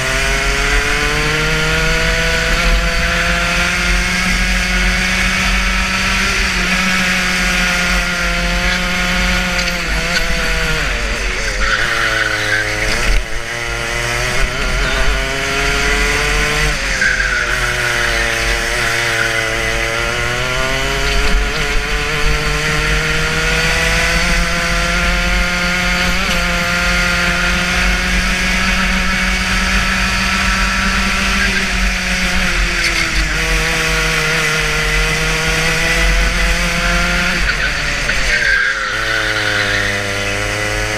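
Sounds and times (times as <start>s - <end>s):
two-stroke kart engine revving: 0.0s - 40.9s.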